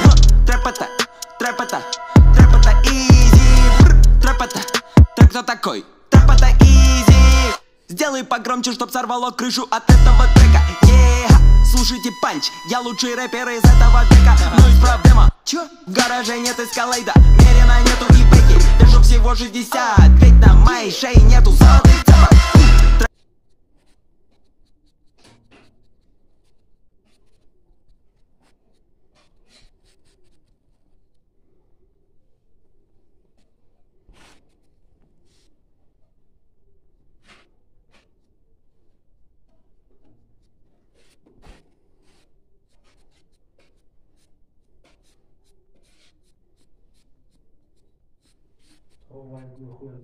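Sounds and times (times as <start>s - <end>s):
pen scratching on paper: 22.0s - 31.2s, 33.3s - 35.6s, 37.2s - 39.0s, 40.4s - 49.1s.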